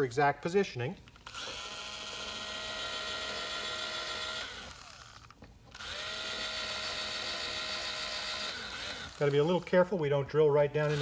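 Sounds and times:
electric drill whining: 0:01.2 - 0:09.7.

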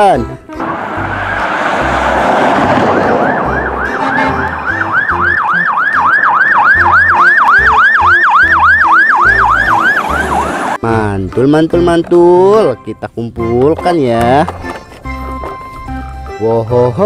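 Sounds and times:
fire engine siren yelping: 0:00.6 - 0:10.8.

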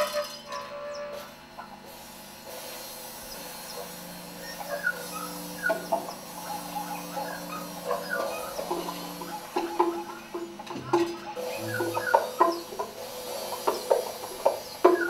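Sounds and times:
squeaky chirps and clicks: 0:11.0 - 0:12.8.

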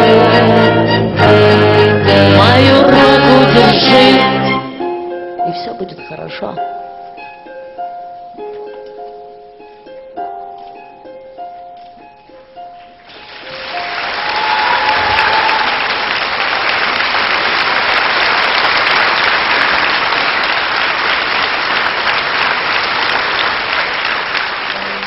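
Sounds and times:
song ending: 0:00.0 - 0:05.2
audience applauding: 0:13.0 - 0:25.0.

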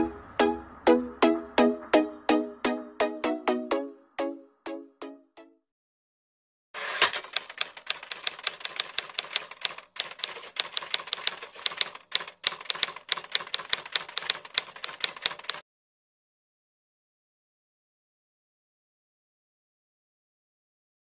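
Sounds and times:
rapid key clicks: 0:07.0 - 0:15.6.

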